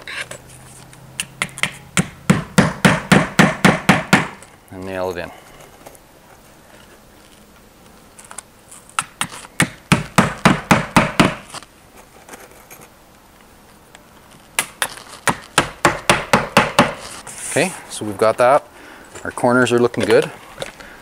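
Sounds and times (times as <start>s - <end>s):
hammer striking nails: 1.2s - 4.4s, 9.0s - 11.6s, 14.6s - 17.0s.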